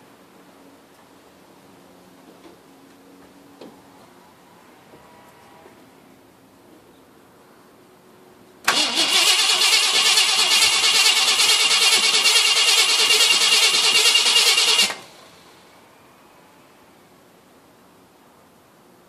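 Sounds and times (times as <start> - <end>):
engine cranking: 8.7 - 15.2.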